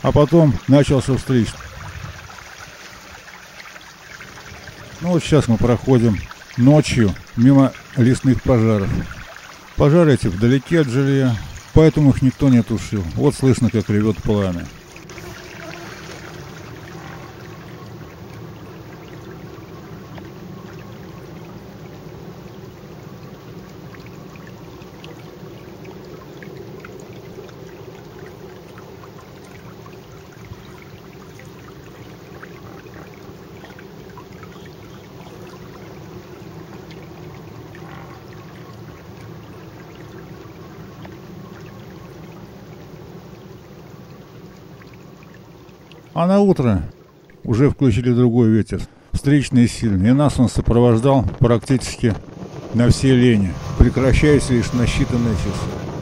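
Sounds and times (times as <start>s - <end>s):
forest fire flames roaring: 51.0s - 56.0s
fire crackling: 51.1s - 56.0s.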